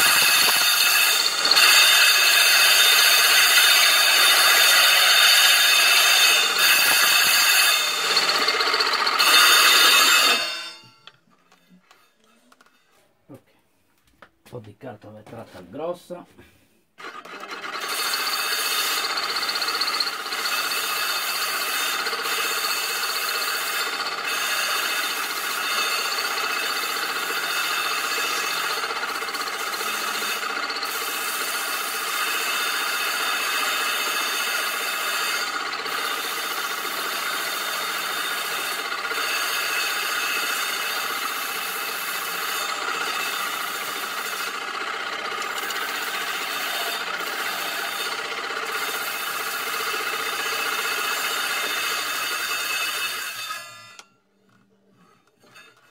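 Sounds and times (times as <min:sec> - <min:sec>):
cymbal ringing tones: 0:00.0 - 0:11.0.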